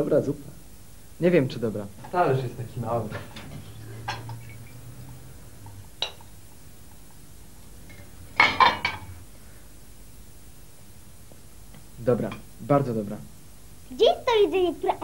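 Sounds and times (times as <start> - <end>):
plates and cutlery clinking: 2.0 - 7.2, 7.8 - 9.2.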